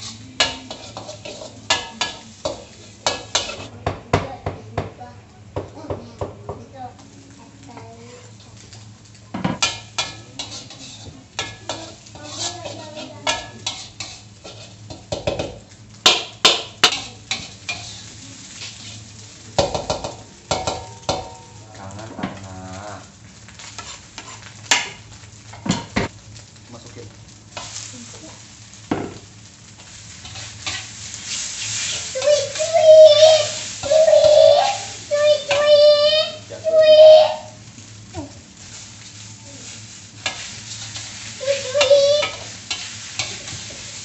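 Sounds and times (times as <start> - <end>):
metal spatula scraping in wok: 0.0 - 3.7, 9.6 - 22.5, 23.5 - 25.9, 27.6 - 28.0, 29.7 - 35.7, 38.6 - 44.0
steady low hum: 0.0 - 36.7
egg sizzling: 0.0 - 44.0.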